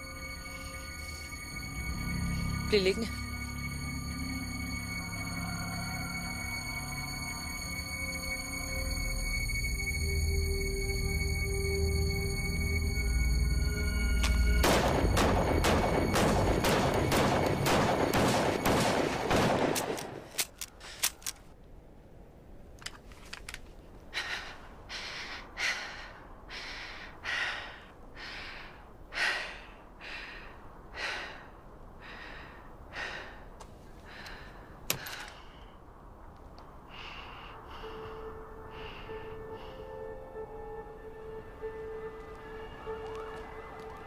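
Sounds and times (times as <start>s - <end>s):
heavy ragged breathing: 36.8s - 40.2s.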